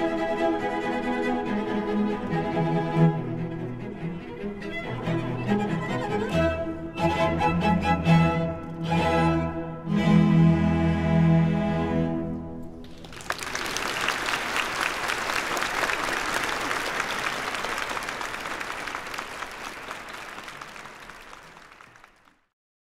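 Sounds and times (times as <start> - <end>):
cello ensemble chord: 0.0 - 12.6
audience applause: 12.8 - 22.5.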